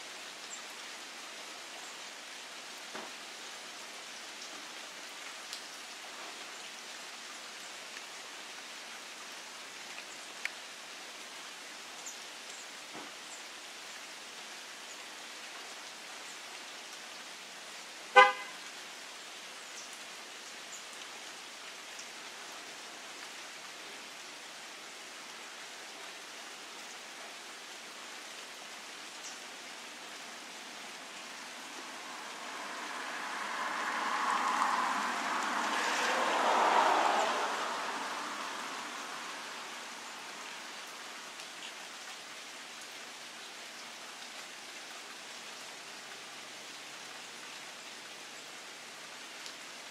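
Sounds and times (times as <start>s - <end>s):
steady outdoor hiss: 0.0s - 49.9s
car horn toot: 18.2s - 18.6s
rushing noise: 31.3s - 40.7s.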